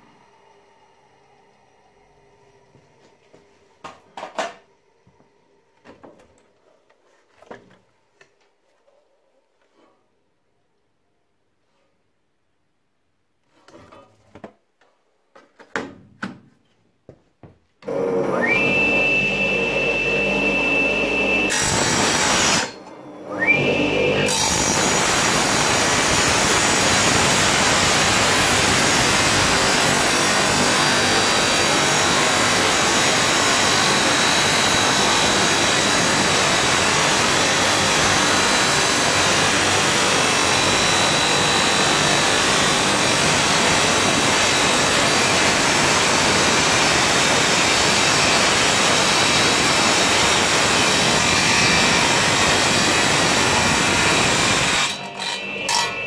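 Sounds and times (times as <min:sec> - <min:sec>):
tile saw motor whining: 0:17.8 - 0:56.0
saw blade grinding through metal: 0:21.4 - 0:22.8, 0:23.6 - 0:56.0.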